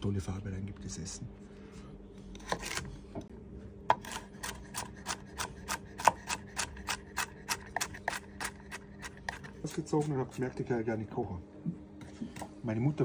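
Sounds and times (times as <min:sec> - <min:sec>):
knife chopping on wooden board: 0:03.9 - 0:08.5.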